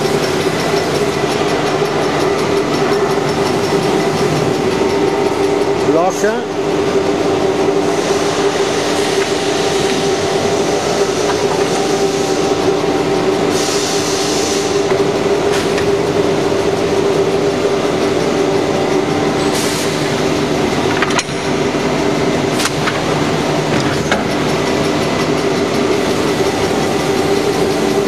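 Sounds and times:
machine humming: 0.0s - 28.0s
air clamp hisses and clicks: 8.1s - 10.2s
compressed air hiss: 13.5s - 14.8s, 19.5s - 20.1s.

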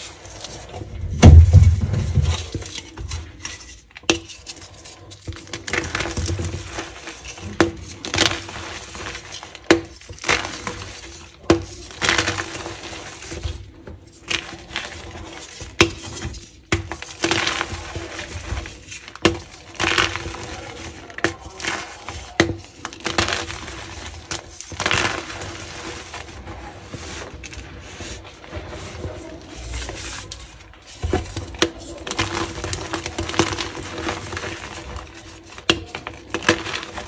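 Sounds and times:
chalk cracking and crumbling: 0.0s - 37.0s
heavy low thud: 1.0s - 2.2s.

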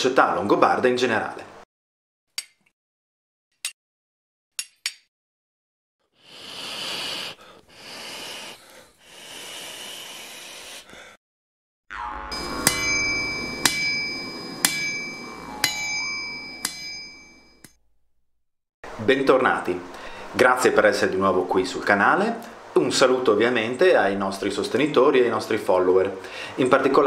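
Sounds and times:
rushing hiss: 6.2s - 10.9s
low drone: 11.9s - 17.6s
ringing metallic strikes: 11.9s - 17.8s.

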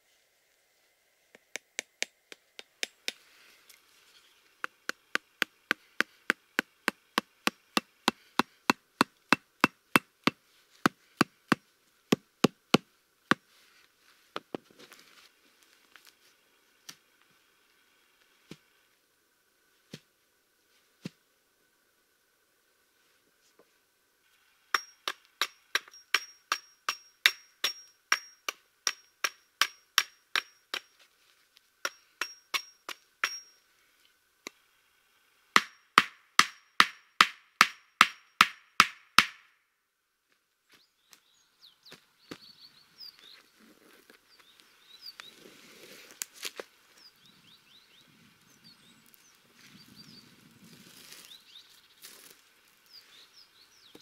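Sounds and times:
rustling and handling: 13.4s - 16.4s
hatchet driving stakes: 24.8s - 30.9s, 31.8s - 33.6s
bird chirps: 40.6s - 43.6s, 44.2s - 45.4s, 47.0s - 50.4s, 51.2s - 52.1s.

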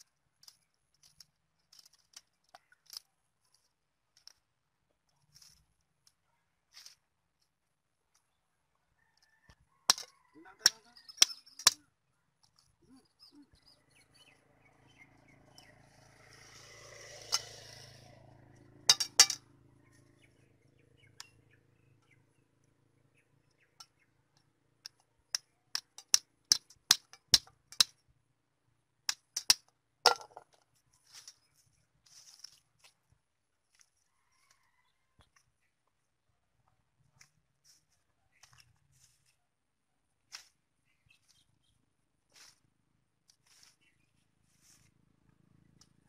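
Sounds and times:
clinks in metal bucket: 18.9s - 19.4s
soft rustle: 30.8s - 35.2s, 37.0s - 39.5s, 40.2s - 45.0s.

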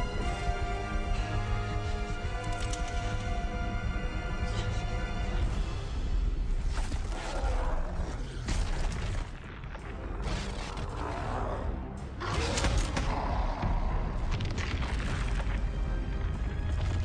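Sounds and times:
orchestral score: 0.0s - 8.2s.

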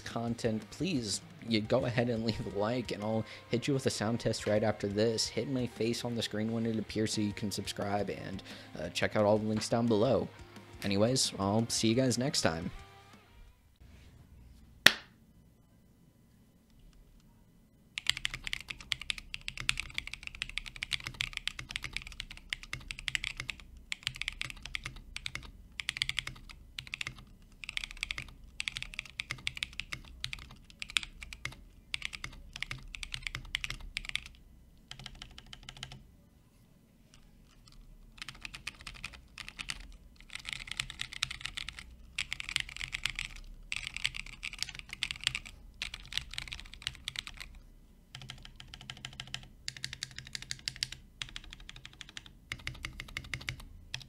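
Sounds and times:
mechanical keyboard typing: 18.0s - 36.0s, 37.1s - 54.0s.

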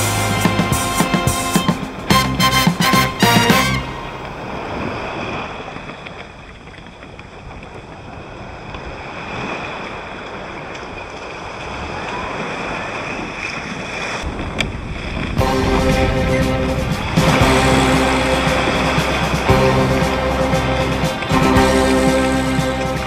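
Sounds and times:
water lapping against kayak: 3.7s - 23.0s
wind on microphone: 14.2s - 23.0s.

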